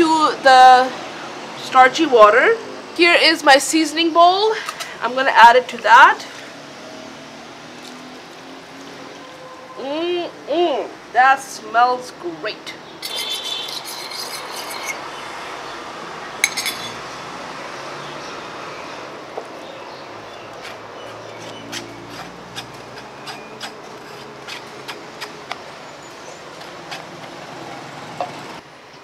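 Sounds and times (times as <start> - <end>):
fork clinking against bowl: 16.4 - 17.0.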